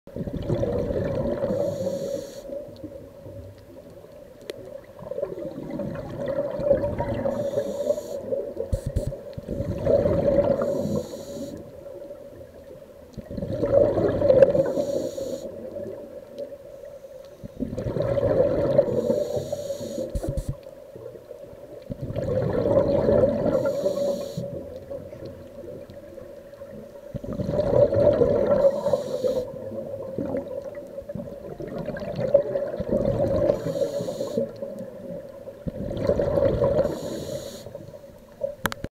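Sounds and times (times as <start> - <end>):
exhaled bubbles rumbling underwater: 0.1 - 38.9
regulator inhale hiss: 1.5 - 2.6, 7.2 - 9.2, 10.5 - 11.7, 14.6 - 15.7, 18.9 - 20.6, 23.5 - 24.6, 28.5 - 29.6, 33.5 - 34.6, 36.8 - 38.0.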